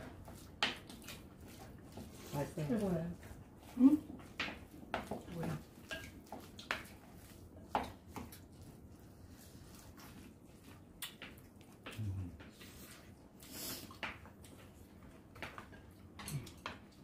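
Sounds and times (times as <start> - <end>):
chopsticks tapping bowls: 3.6 - 7.0.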